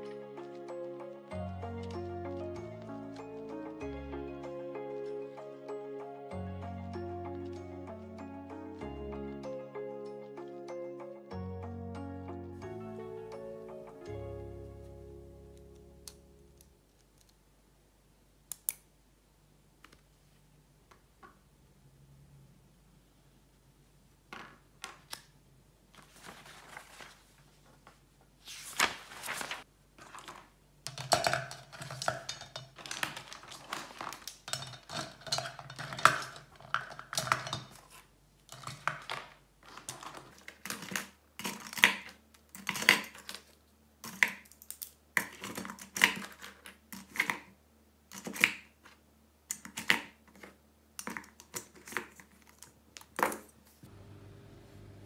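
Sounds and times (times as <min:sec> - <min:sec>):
small hard objects clinking: 0:30.0 - 0:47.5.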